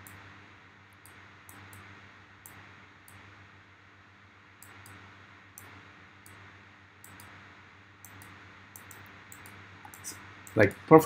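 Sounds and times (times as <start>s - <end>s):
faint steady hum: 0.0s - 11.0s
computer mouse clicks: 4.6s - 5.0s, 7.0s - 7.4s, 8.0s - 10.8s.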